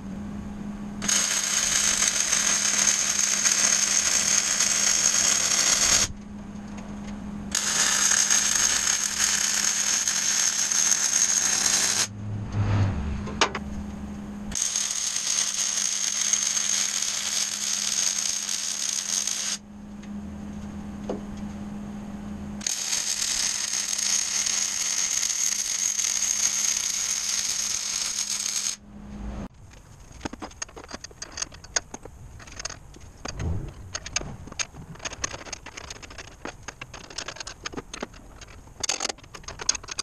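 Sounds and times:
steady hum: 0.0s - 15.3s, 19.6s - 24.6s, 27.2s - 40.0s
welding arc crackle: 1.0s - 6.1s, 7.5s - 12.1s, 14.5s - 19.6s, 22.6s - 28.8s
metal parts clinking: 29.7s - 40.0s.

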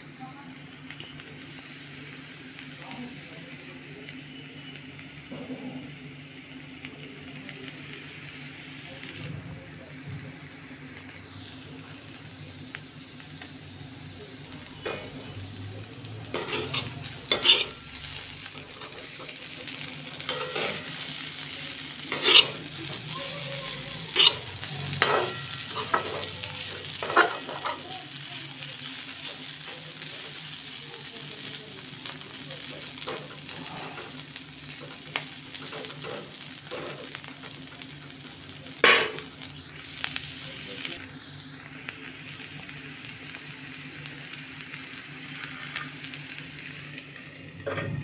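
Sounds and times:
potato sticks sizzling in oil: 0.0s - 48.0s
metal spatula scraping pan: 16.3s - 17.8s, 22.1s - 22.6s, 24.1s - 26.3s.

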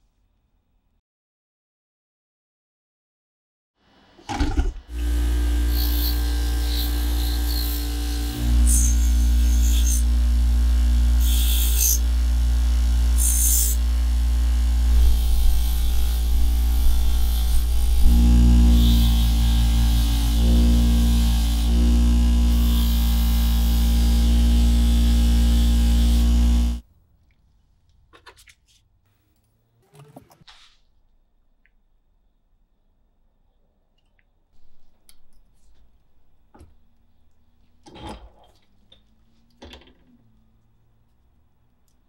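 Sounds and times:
electrical hum: 4.5s - 26.8s.

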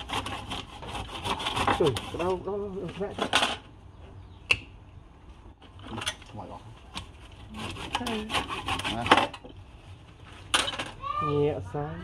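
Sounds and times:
steel tool scraping spinning wood: 0.0s - 2.5s, 7.0s - 9.5s.

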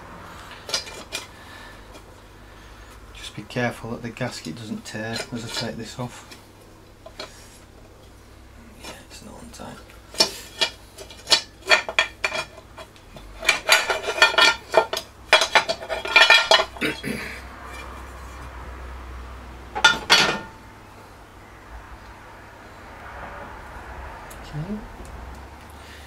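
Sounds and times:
metal clinks and knocks: 10.1s - 17.0s, 19.7s - 20.6s.

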